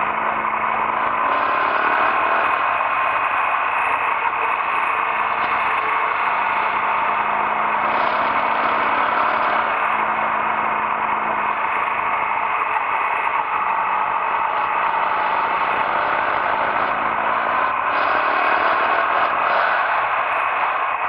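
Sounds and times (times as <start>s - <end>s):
motorcycle running at road speed: 0.0s - 21.0s.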